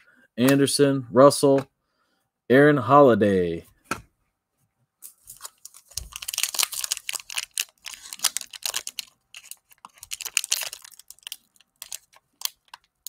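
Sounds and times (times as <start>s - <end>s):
cellophane wrapper crinkling: 5.0s - 13.0s.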